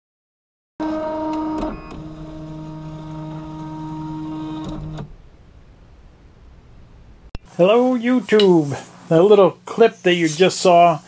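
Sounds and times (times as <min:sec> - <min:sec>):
stepper motors whining: 0:00.8 - 0:05.2.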